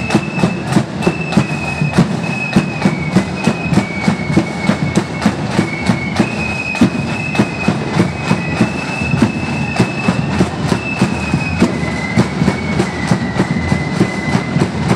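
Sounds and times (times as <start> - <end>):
flutes playing high melody: 0.0 - 14.9
steady drum beat: 0.0 - 14.9.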